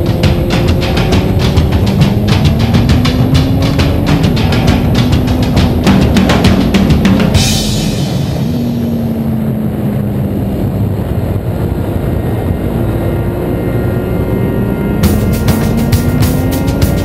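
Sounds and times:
music with drums: 0:00.0 - 0:09.1, 0:15.0 - 0:17.0
motorcycle engine running: 0:00.0 - 0:10.8, 0:11.9 - 0:17.0
wind noise on microphone: 0:00.0 - 0:17.0.

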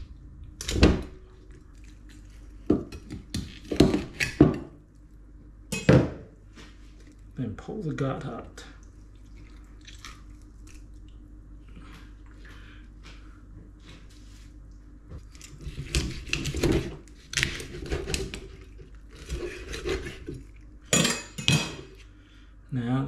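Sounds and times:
knife scraping through fish: 0:15.4 - 0:20.5.

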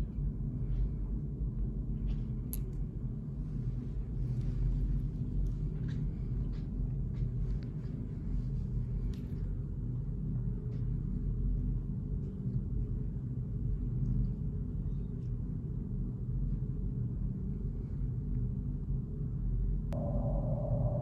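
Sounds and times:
low rumbling drone: 0:19.9 - 0:21.0.

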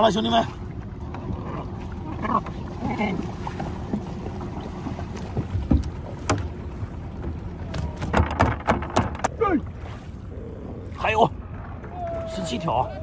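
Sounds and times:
wind and water rumble: 0:00.0 - 0:13.0
knocks and taps on a boat: 0:02.3 - 0:09.6.

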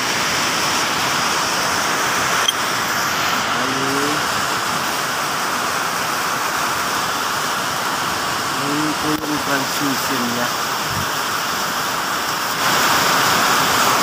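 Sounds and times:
loud background hiss: 0:00.0 - 0:14.0.

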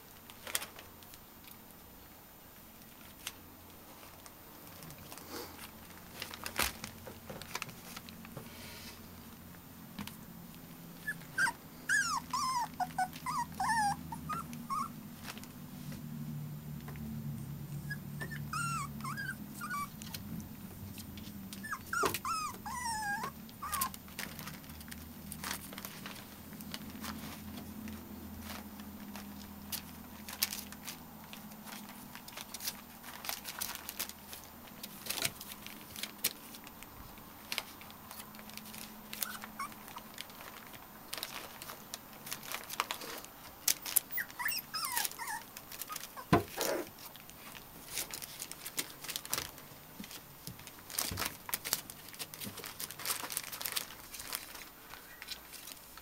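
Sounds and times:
puppies whimpering and yipping: 0:11.0 - 0:15.3, 0:17.7 - 0:20.2, 0:21.6 - 0:24.0, 0:39.2 - 0:40.1, 0:44.0 - 0:46.9.

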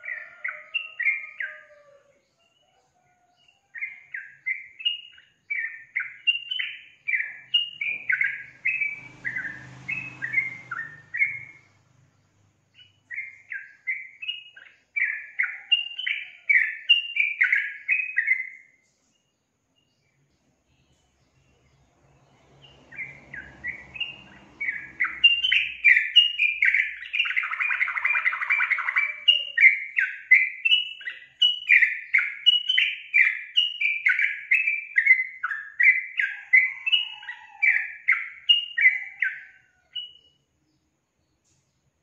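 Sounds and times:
bird singing warbling notes: 0:03.8 - 0:11.6, 0:22.2 - 0:39.4.

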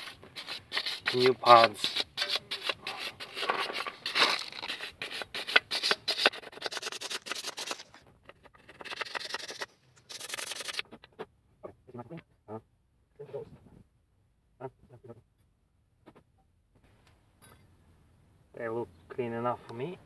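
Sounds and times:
wire brush scrubbing metal: 0:00.0 - 0:10.8.

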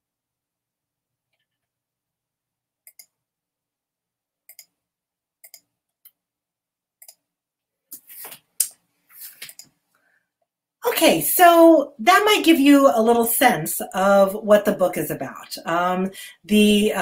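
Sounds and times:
computer mouse clicking: 0:02.8 - 0:03.2, 0:04.5 - 0:04.7, 0:05.4 - 0:06.2, 0:07.0 - 0:07.2.

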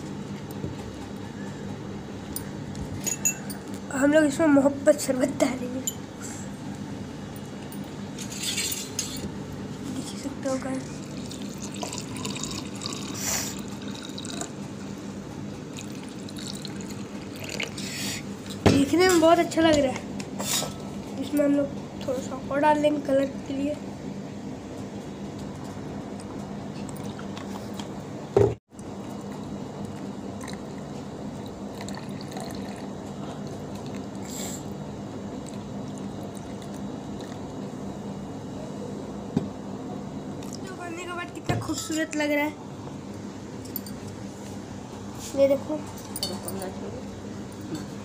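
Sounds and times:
steady low hum: 0:00.0 - 0:48.0
drink pouring into glasses: 0:11.0 - 0:14.6, 0:15.7 - 0:17.9, 0:30.4 - 0:33.0.

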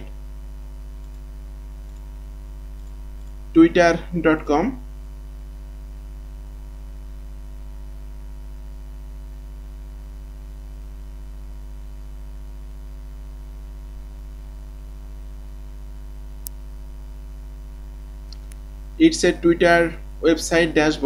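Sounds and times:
low electrical mains hum: 0:00.0 - 0:21.0.

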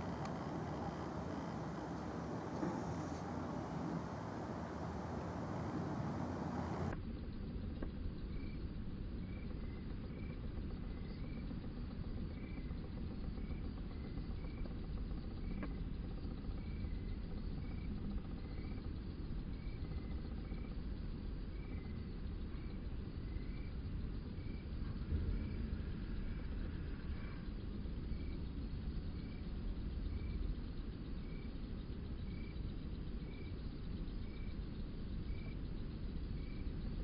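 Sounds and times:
insect chirping: 0:00.0 - 0:37.0.

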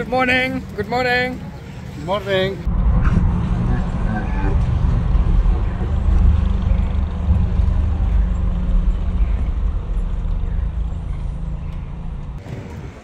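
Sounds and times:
vehicle engine running: 0:02.6 - 0:13.0.

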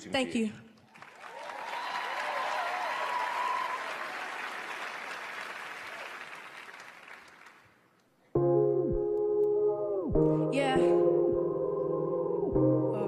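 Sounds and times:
audience applauding: 0:00.8 - 0:07.9
voices cheering: 0:01.3 - 0:04.7.

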